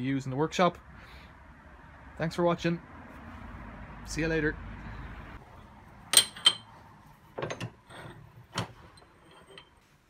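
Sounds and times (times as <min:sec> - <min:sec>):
metal plates clinking on a vice: 0:06.1 - 0:06.7, 0:07.4 - 0:09.8.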